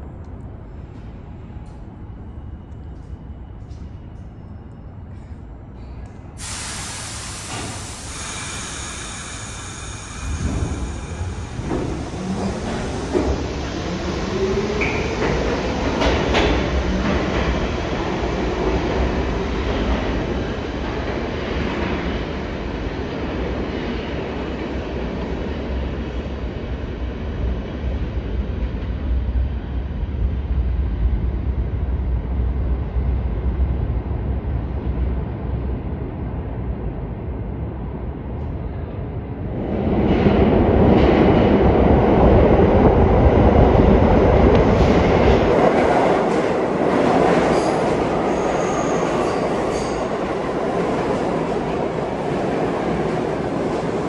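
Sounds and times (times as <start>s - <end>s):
subway train rumble: 0.0s - 54.0s
train wheel squeal: 47.1s - 50.5s.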